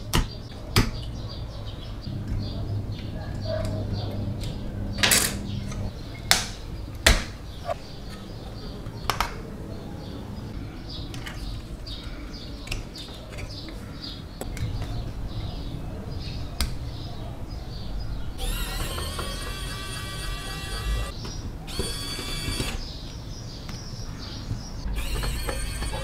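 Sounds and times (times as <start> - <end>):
screwdriver turning screws: 18.4 - 22.8, 25.0 - 26.0.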